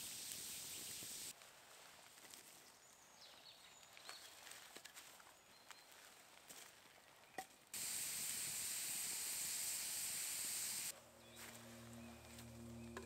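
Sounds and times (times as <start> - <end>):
loud steady hiss: 0.0 - 1.4, 7.8 - 11.0
music with low held tones: 10.9 - 13.0.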